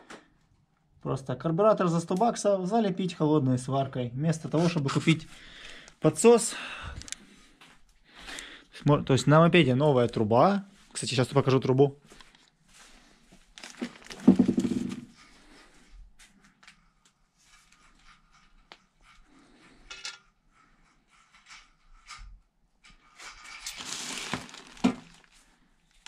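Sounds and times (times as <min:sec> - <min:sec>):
plastic bag rustling: 0:13.5 - 0:15.2, 0:23.4 - 0:25.7.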